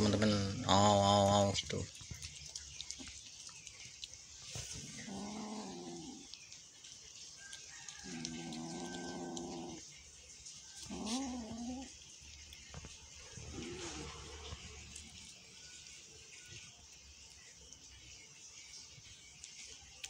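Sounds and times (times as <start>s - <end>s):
eating clicks on paper: 1.7s - 4.4s
cat growling: 4.8s - 6.4s, 8.0s - 9.9s, 10.8s - 12.0s, 13.4s - 14.7s.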